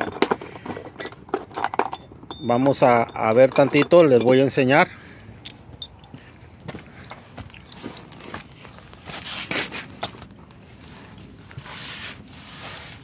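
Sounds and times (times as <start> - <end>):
shuffling footsteps: 5.6 - 13.0
scraping and rustling: 7.8 - 13.0.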